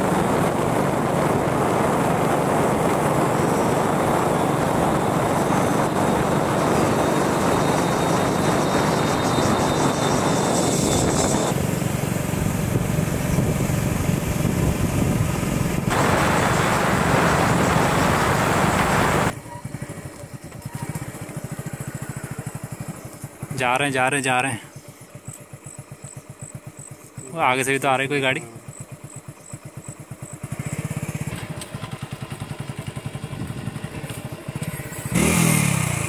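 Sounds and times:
wind rush on microphone: 0.0s - 19.3s, 32.6s - 34.4s
vehicle engine running: 0.0s - 36.0s.

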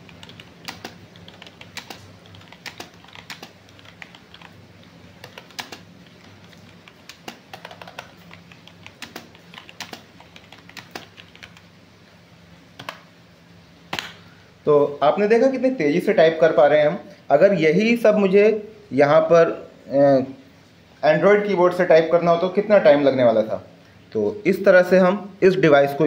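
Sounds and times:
keyboard typing: 0.0s - 11.7s, 12.8s - 13.0s.

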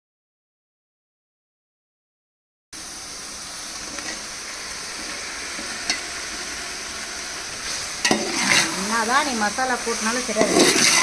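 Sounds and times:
spices sizzling in oil: 2.8s - 11.0s.

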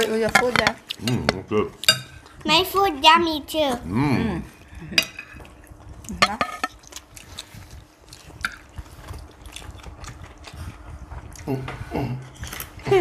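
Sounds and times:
person humming: 11.4s - 13.0s.

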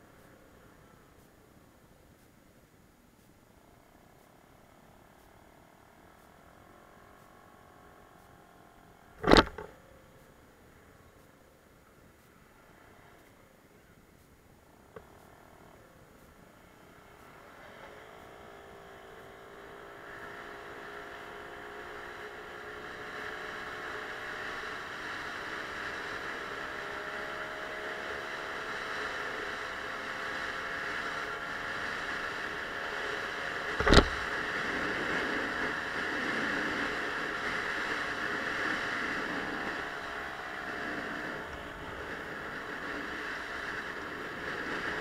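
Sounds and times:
wind and road noise: 0.0s - 45.0s
sharp knock: 9.2s - 9.7s.

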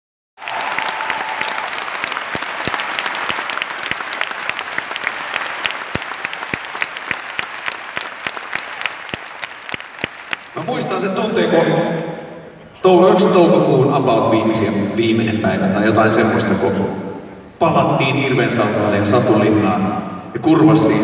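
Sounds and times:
audience applauding: 0.4s - 10.9s.

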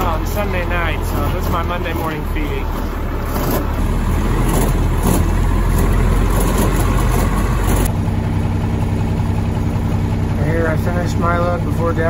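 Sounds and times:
farm machinery engine hum: 0.0s - 12.0s
rushing mechanical noise: 0.0s - 12.0s.

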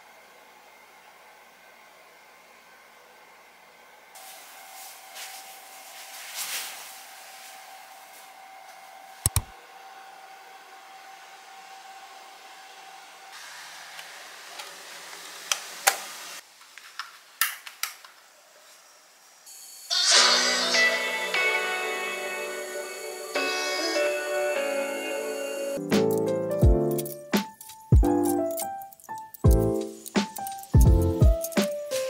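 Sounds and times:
sharp clicks and taps: 9.3s - 9.5s.

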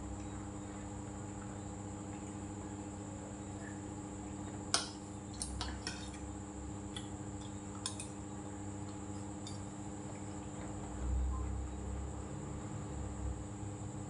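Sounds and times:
metal spoon clinking on dishes: 7.8s - 8.2s.

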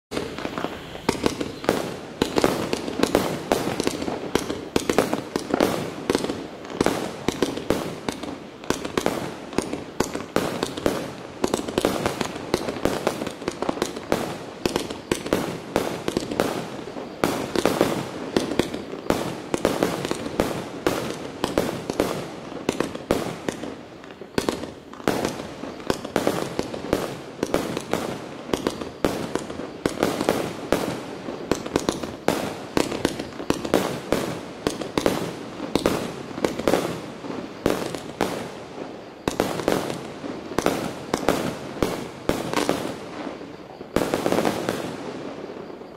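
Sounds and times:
firework cake rapid shots: 0.1s - 16.7s.

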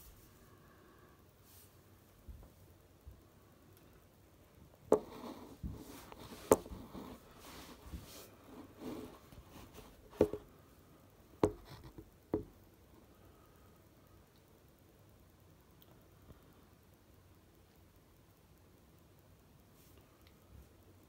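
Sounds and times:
soft rustling: 0.0s - 0.8s, 1.4s - 2.8s, 4.9s - 10.6s.

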